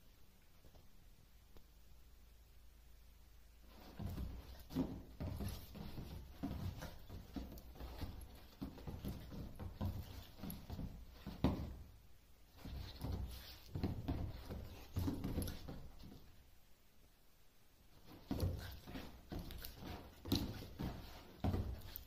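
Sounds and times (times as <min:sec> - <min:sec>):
dog thumping on a leather sofa: 0:03.7 - 0:11.8, 0:12.6 - 0:16.2.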